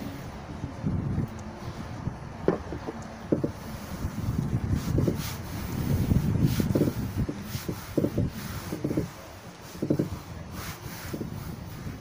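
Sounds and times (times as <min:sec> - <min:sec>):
wind buffeting microphone: 0:00.0 - 0:12.0
palm scuffing vinyl sheet: 0:02.5 - 0:12.0.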